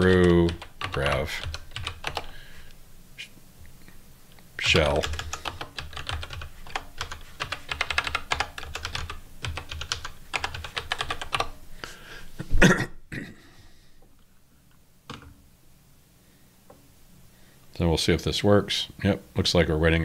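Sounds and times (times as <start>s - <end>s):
rapid keyboard typing: 0.0s - 2.4s, 4.6s - 11.6s.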